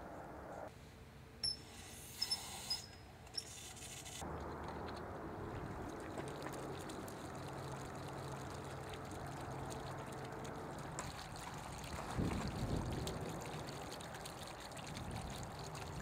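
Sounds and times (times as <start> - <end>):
hose water spraying and splashing: 5.5 - 16.0.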